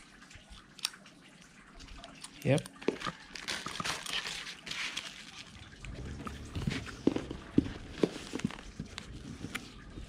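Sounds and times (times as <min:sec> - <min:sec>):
plastic bag rustling: 0:02.9 - 0:05.8, 0:06.4 - 0:10.0.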